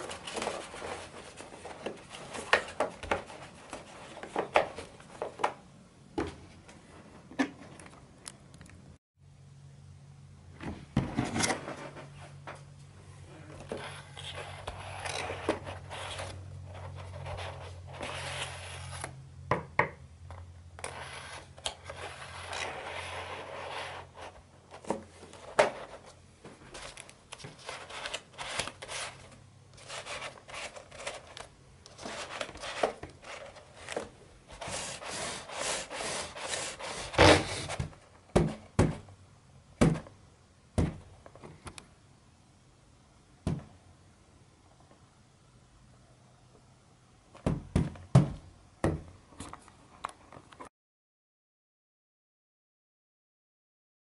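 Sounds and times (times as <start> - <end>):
paper rubbing and scraping: 0.0 - 4.3, 13.7 - 19.1, 20.8 - 26.2, 26.8 - 37.8.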